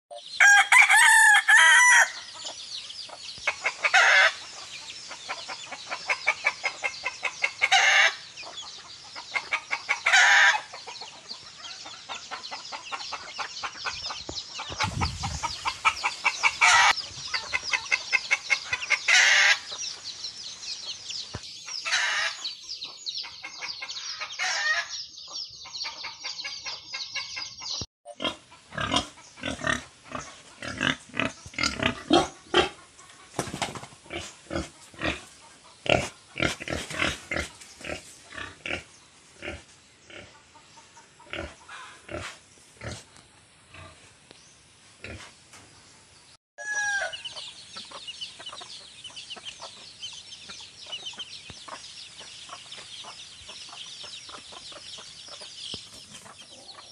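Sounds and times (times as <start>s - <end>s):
rooster crowing and clucking: 0.3s - 2.4s, 9.9s - 10.8s, 14.8s - 17.0s, 46.6s - 47.5s.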